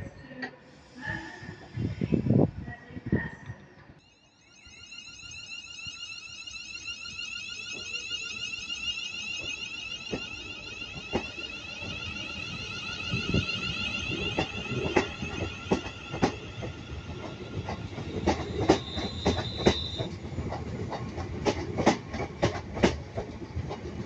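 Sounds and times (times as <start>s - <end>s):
warbling electronic alarm tone: 4.0s - 20.1s
low train rumble: 9.4s - 24.0s
train wheels clicking over joints: 11.0s - 24.0s.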